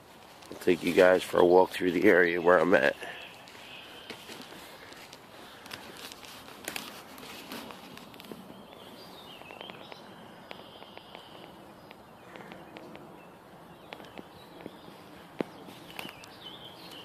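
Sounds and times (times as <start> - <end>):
footsteps through leaf litter: 0.0 - 9.9
bird calling: 1.3 - 6.1, 7.2 - 17.0.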